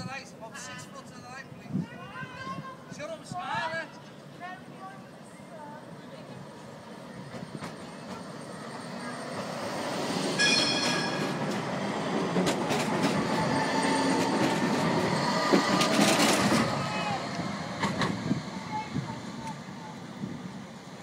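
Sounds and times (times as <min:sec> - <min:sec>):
light-rail train passing: 0:00.0 - 0:21.0
brief high-pitched tone: 0:10.4 - 0:11.4
wheels clicking on rails: 0:10.8 - 0:18.3.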